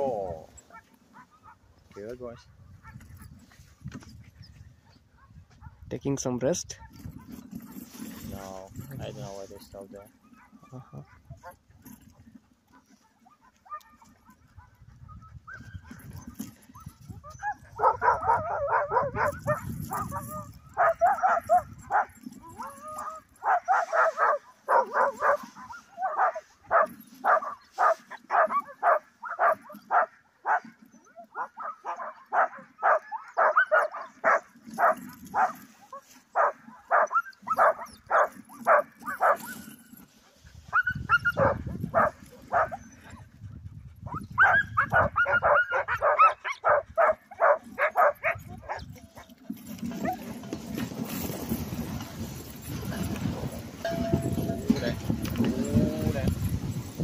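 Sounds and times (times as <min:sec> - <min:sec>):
dogs barking and yipping: 0:00.1 - 0:01.8, 0:02.4 - 0:03.7, 0:04.3 - 0:05.8, 0:06.8 - 0:08.9, 0:10.0 - 0:57.0
sled rushing noise: 0:15.4 - 0:30.6, 0:32.4 - 0:42.8, 0:44.3 - 0:57.0.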